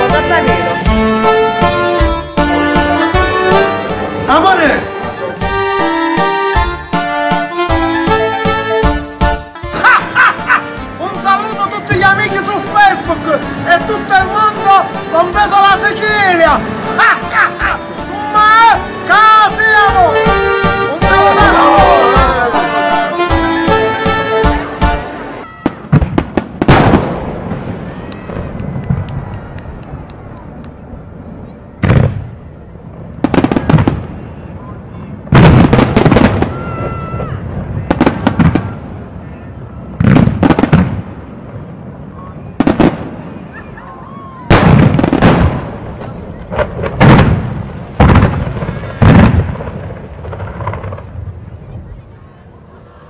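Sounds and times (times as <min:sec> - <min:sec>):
fireworks crackling: 0:00.0 - 0:53.0
fireworks bangs: 0:09.6 - 0:52.8
booming firework bursts: 0:24.5 - 0:52.1.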